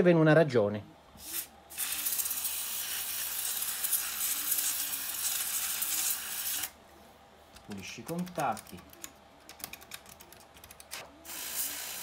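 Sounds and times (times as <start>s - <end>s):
aerosol spray hissing: 1.2s - 6.7s, 11.2s - 12.0s.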